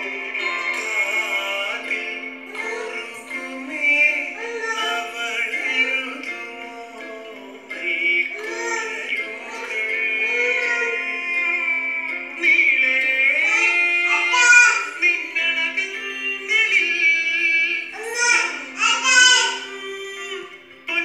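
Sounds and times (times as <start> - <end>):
high voice singing: 0.0 - 21.0.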